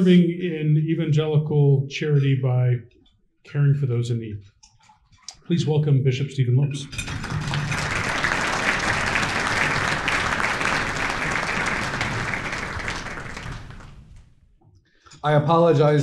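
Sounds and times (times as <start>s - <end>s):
audience applauding: 6.9s - 14.2s.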